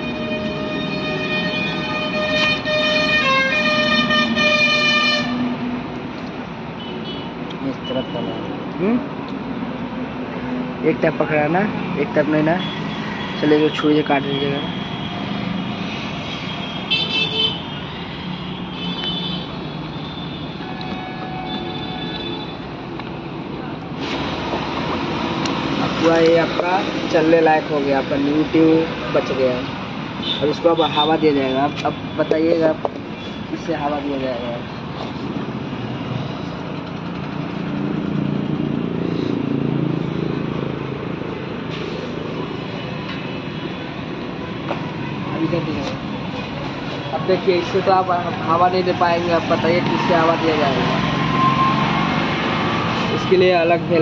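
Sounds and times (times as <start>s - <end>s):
street traffic engine hum: 0.0s - 54.0s
vehicle horn toot: 0.2s - 5.4s.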